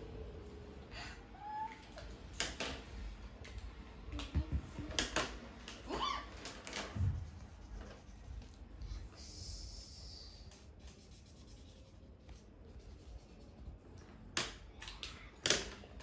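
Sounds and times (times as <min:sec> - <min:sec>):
markers tapping on paper: 0:03.5 - 0:05.8.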